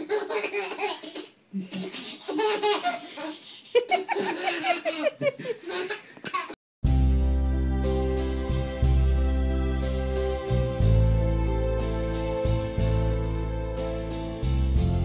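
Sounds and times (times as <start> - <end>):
baby laughing: 0.0 - 6.6.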